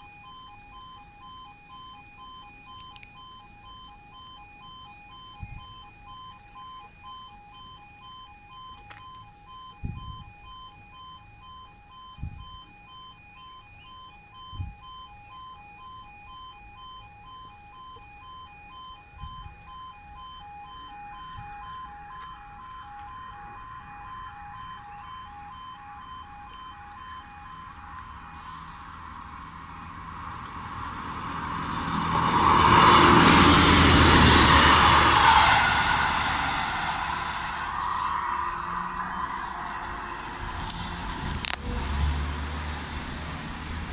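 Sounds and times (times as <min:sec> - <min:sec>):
level crossing two-tone alarm: 0:00.0 - 0:41.6
diesel train passing at speed: 0:28.3 - 0:43.9.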